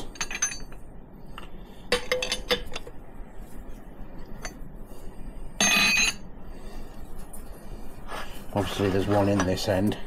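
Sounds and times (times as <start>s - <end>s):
metal tools clinking: 0.0s - 0.8s, 5.6s - 6.2s.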